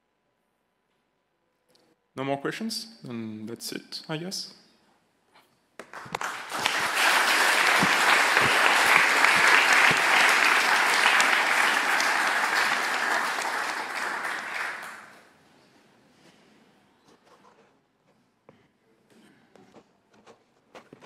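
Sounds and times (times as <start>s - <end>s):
audience applauding: 5.8s - 15.3s.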